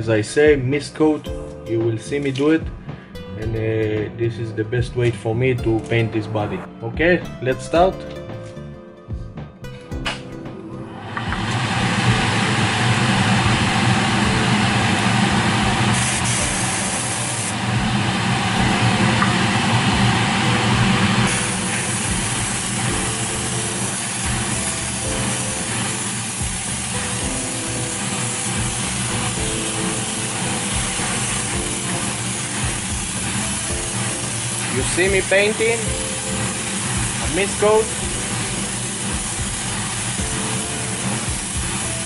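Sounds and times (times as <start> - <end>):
extractor fan humming: 10.8 - 42.0
airbrush spraying hiss: 11.4 - 42.0.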